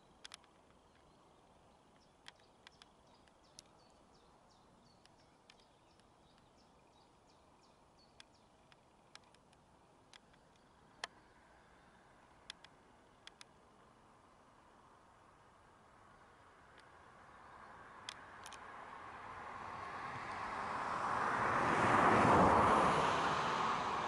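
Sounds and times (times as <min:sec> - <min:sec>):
sharp clicks: 0:00.1 - 0:01.1, 0:01.9 - 0:03.9, 0:05.0 - 0:06.6, 0:08.1 - 0:11.2, 0:12.3 - 0:13.6.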